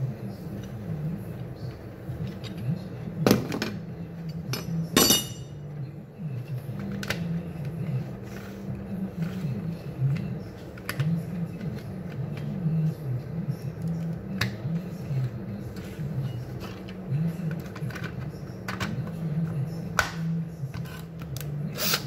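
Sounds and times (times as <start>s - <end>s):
low background hum: 0.0s - 22.0s
sharp metallic clink: 5.0s - 5.5s.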